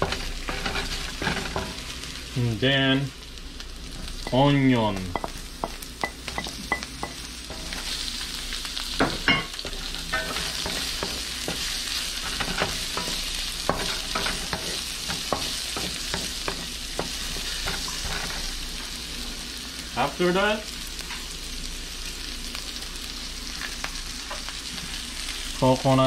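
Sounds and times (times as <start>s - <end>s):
wooden spatula scraping pan: 0.0s - 1.9s, 9.6s - 18.9s
onion sizzling in hot oil: 0.0s - 26.0s.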